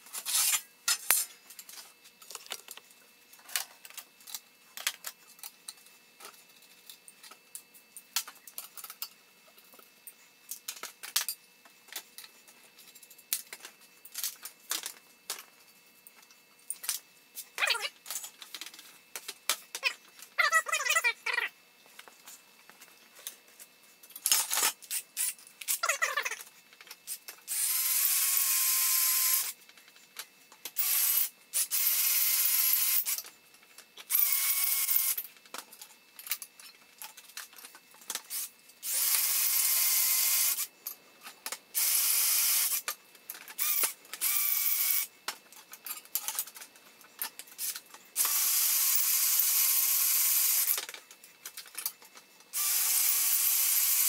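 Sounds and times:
cordless drill boring into steel: 27.5s - 29.5s, 30.8s - 33.2s, 34.1s - 35.2s, 38.3s - 40.7s, 41.8s - 42.8s, 43.6s - 45.1s, 48.2s - 50.8s, 52.6s - 54.0s.

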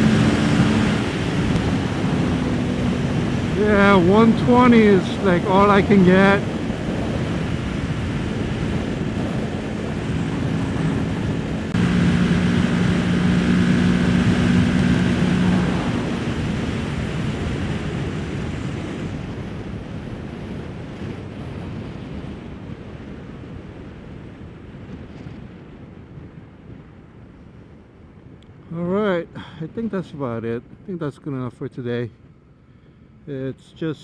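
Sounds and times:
motorcycle engine: 0.0s - 18.3s
wind noise on microphone: 0.0s - 28.7s.

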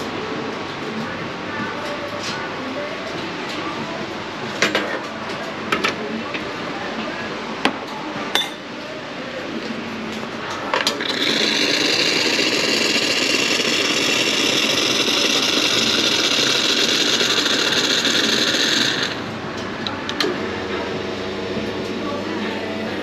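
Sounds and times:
hot water and steam hissing: 11.0s - 19.2s.

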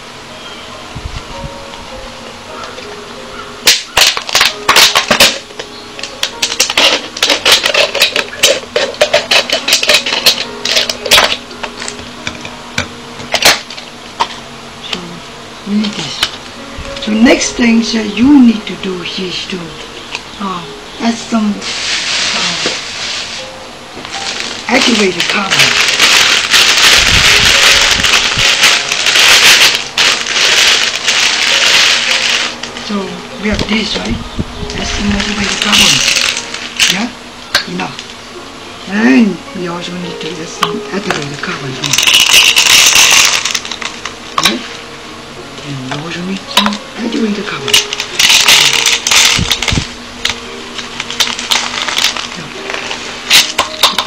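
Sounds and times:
plastic bottles crackling: 3.6s - 12.4s, 13.2s - 14.3s, 20.0s - 34.0s, 34.6s - 38.2s, 40.6s - 44.6s, 45.9s - 54.0s
grains pouring into plastic bottle: 24.2s - 32.6s, 35.2s - 37.0s, 41.8s - 44.1s, 47.7s - 49.8s, 51.0s - 52.5s.

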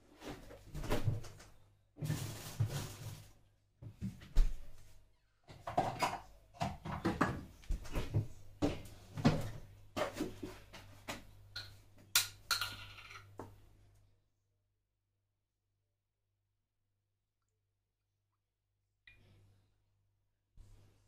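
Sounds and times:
kitchenware clattering: 5.6s - 7.5s.

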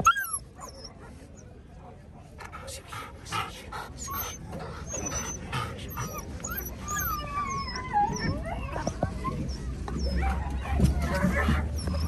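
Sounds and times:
puppies whimpering and whining: 0.0s - 1.0s, 3.8s - 12.0s.

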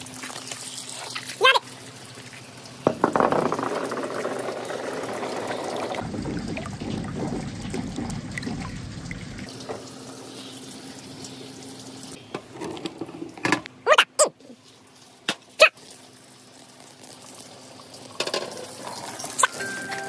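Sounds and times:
glass marbles ticking: 2.9s - 6.0s
water pouring into a tub: 3.9s - 9.6s, 15.8s - 19.6s.

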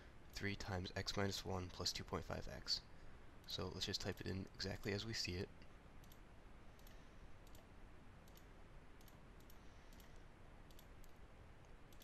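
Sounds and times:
low steady hiss: 0.0s - 12.0s
faint computer clicks: 6.0s - 6.2s, 6.8s - 12.0s.

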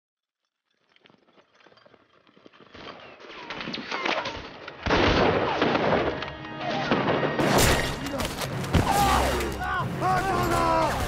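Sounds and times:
gunfire: 4.8s - 9.4s.

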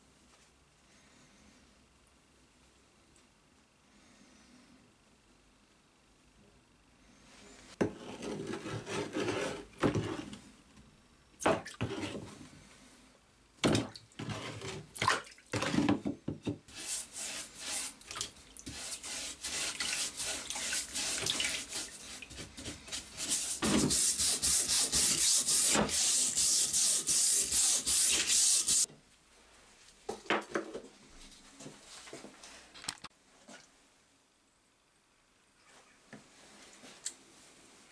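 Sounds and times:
brush scrubbing underwater: 16.7s - 28.9s.

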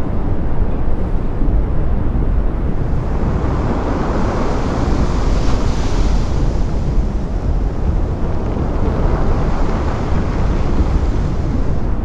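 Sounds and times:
wind buffeting microphone: 0.0s - 12.0s
ocean waves breaking: 2.7s - 12.0s.

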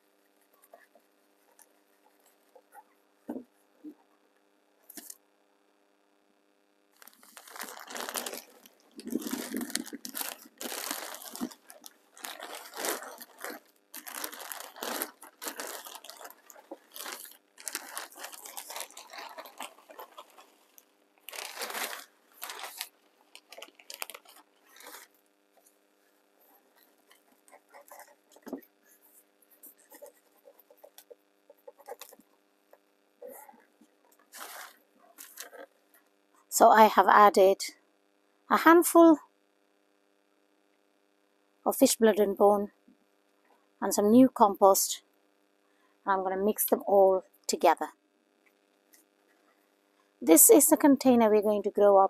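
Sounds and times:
soil rustling as it falls: 7.0s - 25.1s
plastic bag crinkling: 7.0s - 25.2s, 26.6s - 32.2s, 33.2s - 35.8s.

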